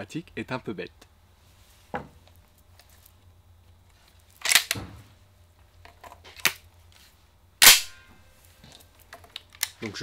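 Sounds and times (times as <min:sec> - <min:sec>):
shell loading clicks: 0:04.4 - 0:04.8, 0:09.4 - 0:10.0.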